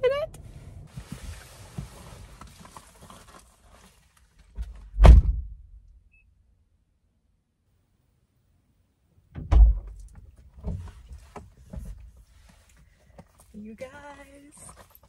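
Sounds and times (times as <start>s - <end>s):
car door slamming shut: 5.0s - 5.6s, 9.4s - 9.9s
rustling and small knocks: 9.7s - 13.9s.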